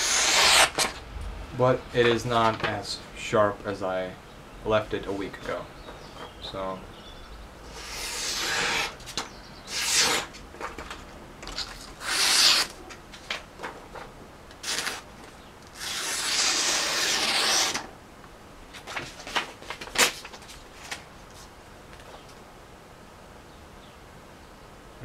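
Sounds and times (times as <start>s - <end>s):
knife slicing paper: 0.0s - 0.9s, 7.7s - 10.4s, 11.5s - 12.8s, 14.6s - 15.1s, 15.8s - 17.9s.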